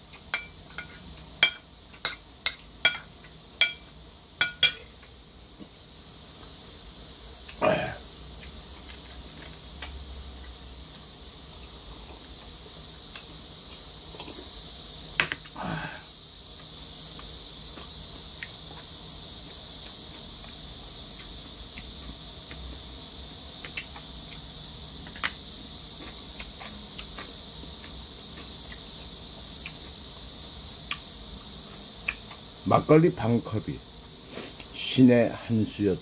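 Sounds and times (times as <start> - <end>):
steady high hiss: 0.0 - 36.0
glass clinking: 0.3 - 4.8.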